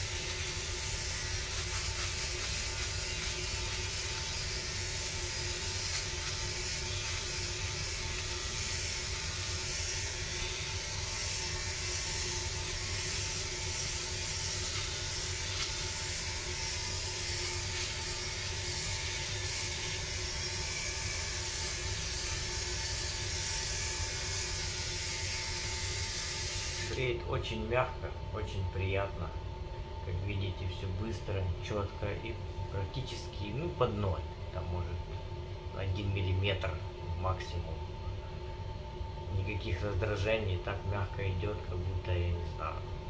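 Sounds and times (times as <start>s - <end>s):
electric trimmer buzzing: 0.0s - 27.0s.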